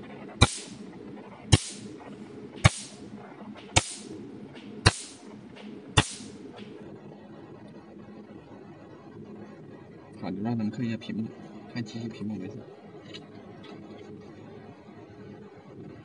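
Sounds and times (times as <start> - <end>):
laser pulses snapping: 0.0 - 6.8
steady low hum: 0.0 - 16.0.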